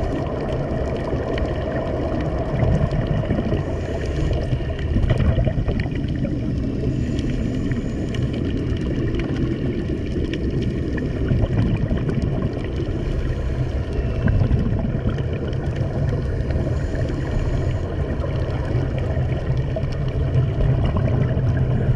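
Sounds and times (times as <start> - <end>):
bubbling: 0.0 - 21.9
muffled underwater rumble: 0.0 - 21.9.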